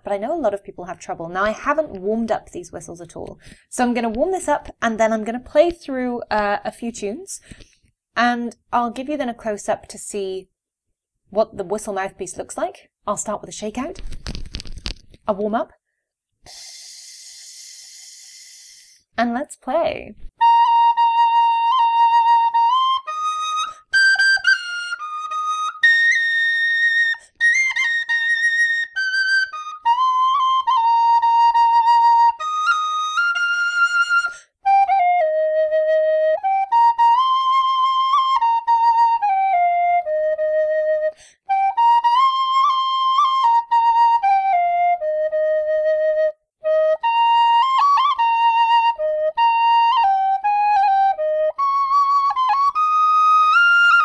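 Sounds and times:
tin whistle melody: 16.5s - 19.0s, 20.4s - 54.0s.

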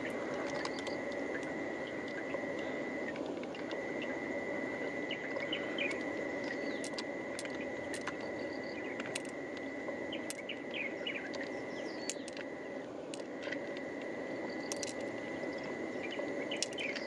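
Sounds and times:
high insect drone: 0.0s - 17.0s
bird chirps: 5.0s - 6.8s, 10.1s - 12.3s
pearls tapping together: 10.2s - 12.4s, 14.6s - 15.7s, 16.6s - 17.0s.

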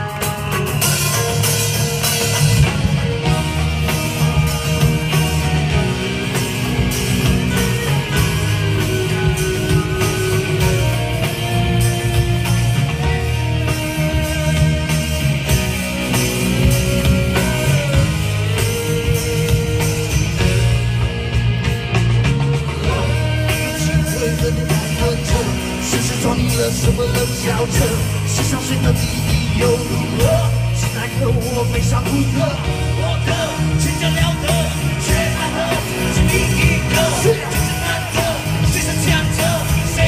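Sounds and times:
live rock band: 0.0s - 40.0s.

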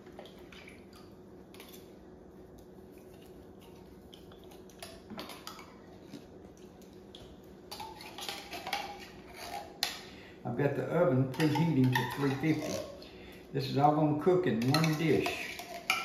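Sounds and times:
metal spoon scraping can and bowl: 7.7s - 10.0s, 11.3s - 13.0s, 14.6s - 16.0s.

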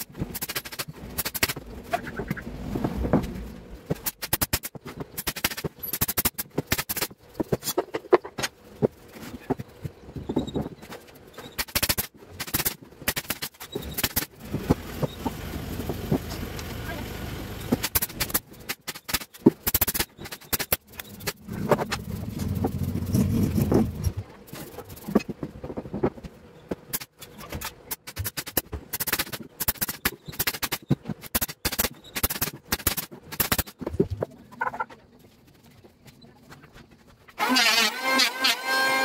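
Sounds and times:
nail gun firing: 0.0s - 1.6s, 4.0s - 7.2s, 11.6s - 14.3s, 17.8s - 20.9s, 27.9s - 33.7s, 37.4s - 39.0s
low hum: 20.8s - 25.2s.

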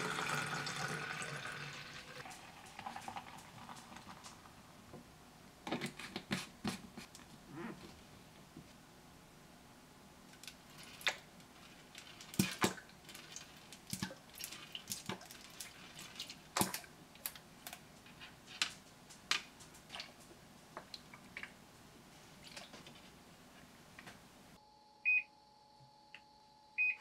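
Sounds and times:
squeeze bottles squirting liquid: 10.7s - 16.9s.

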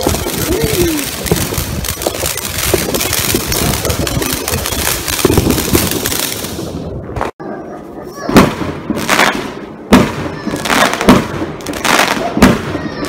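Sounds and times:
firework fountain hissing and crackling: 0.0s - 7.1s.

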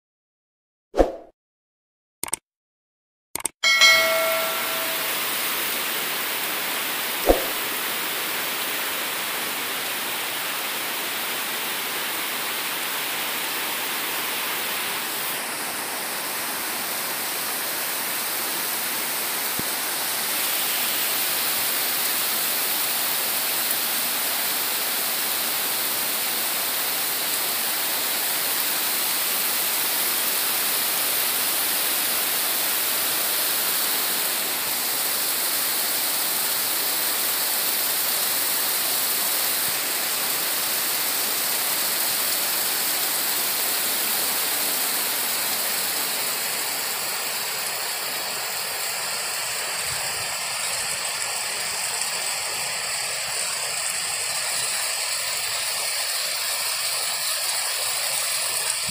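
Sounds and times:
heavy rain on foliage: 4.0s - 58.9s
sharp knock: 7.2s - 7.6s.

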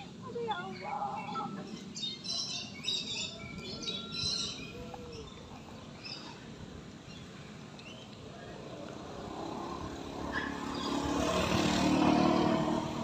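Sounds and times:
birds giving harsh high calls: 10.2s - 13.0s.

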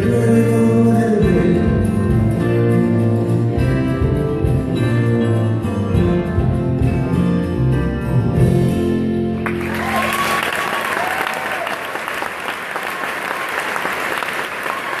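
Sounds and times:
live band with acoustic guitar: 0.0s - 15.0s
audience applause: 9.4s - 15.0s
audience cheering: 9.5s - 15.0s.

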